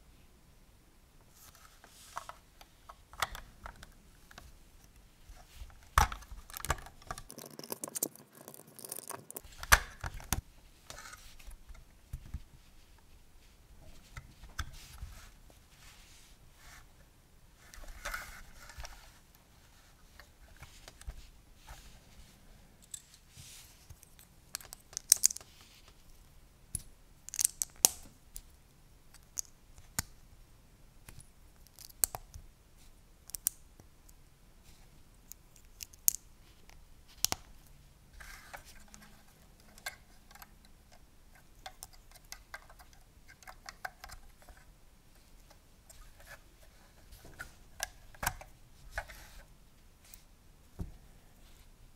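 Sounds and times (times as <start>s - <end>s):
plastic bricks clicking and snapping: 24.5s - 25.5s, 26.7s - 28.0s, 35.3s - 36.2s.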